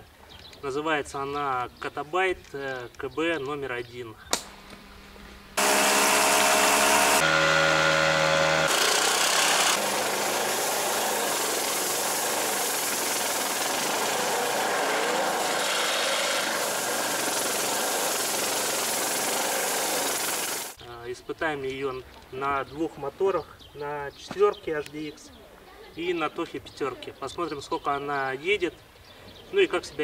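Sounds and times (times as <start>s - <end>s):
outboard motor running: 5.6s - 20.8s
reeds scraping along boat: 9.8s - 19.7s.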